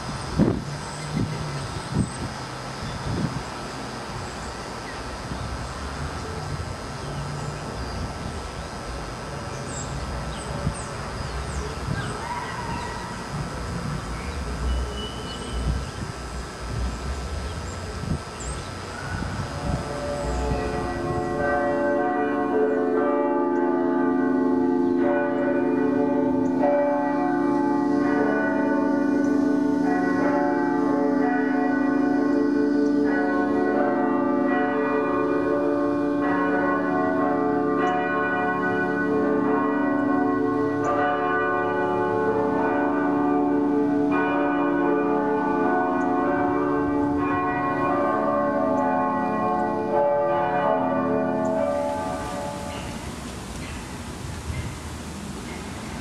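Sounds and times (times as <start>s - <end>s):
church bells ringing: 0.0s - 53.9s.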